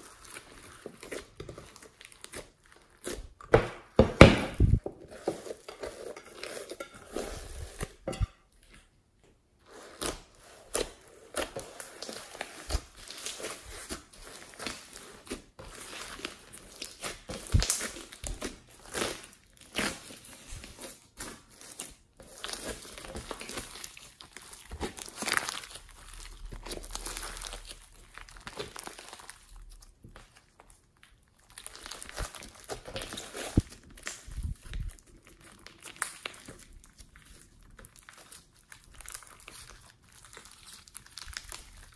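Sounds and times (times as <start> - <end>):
slime crackling and popping: 9.9 - 41.9.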